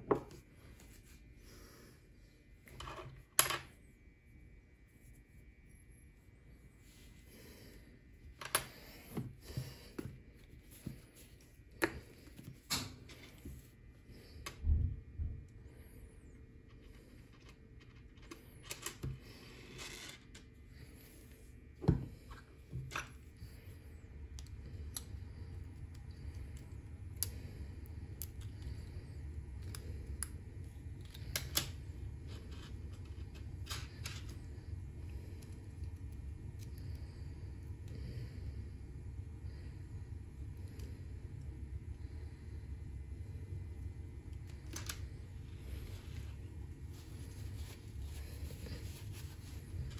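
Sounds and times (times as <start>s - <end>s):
steady low hum: 0.0s - 49.9s.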